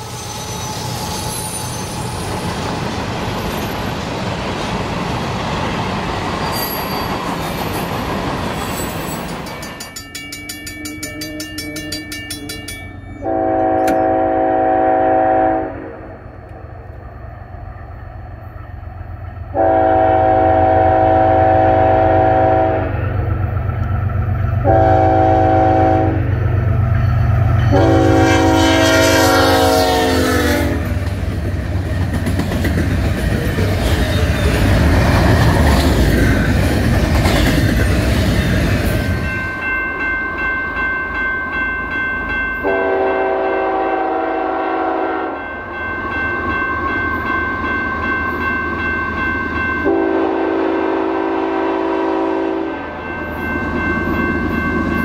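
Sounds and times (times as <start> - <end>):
clatter of train wheels: 0.0 - 14.2, 30.8 - 40.1
train rumbling past: 0.0 - 55.0
locomotive air horn: 13.2 - 16.2, 19.5 - 23.1, 24.6 - 26.3, 27.6 - 31.0, 42.6 - 45.4, 49.8 - 53.0.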